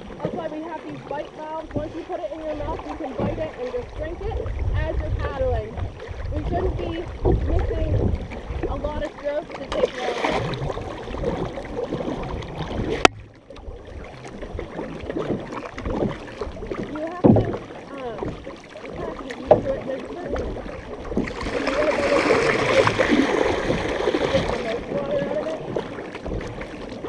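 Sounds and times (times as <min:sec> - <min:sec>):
paddle strokes in water: 0:00.0 - 0:27.0
water washing along hull: 0:00.0 - 0:27.0
wind on microphone: 0:01.7 - 0:13.1.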